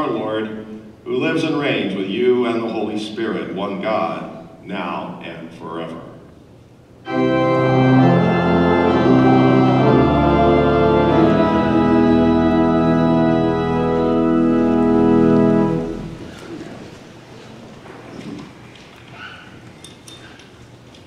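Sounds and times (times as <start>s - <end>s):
church organ chords: 7.0s - 16.9s.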